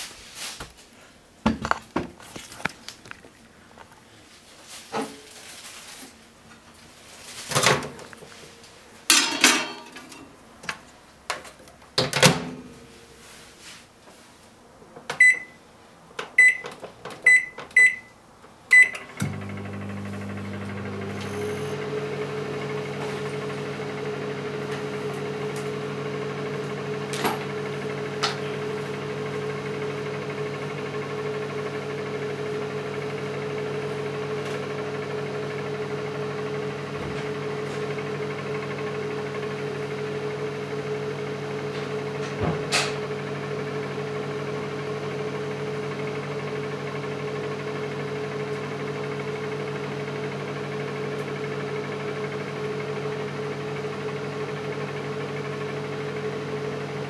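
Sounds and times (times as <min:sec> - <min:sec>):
microwave humming: 0:09.2 - 0:10.3, 0:18.7 - 0:57.0.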